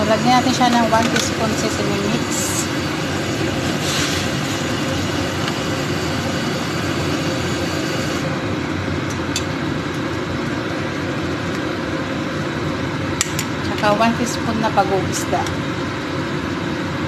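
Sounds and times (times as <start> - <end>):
soup boiling and bubbling: 2.3 - 13.2.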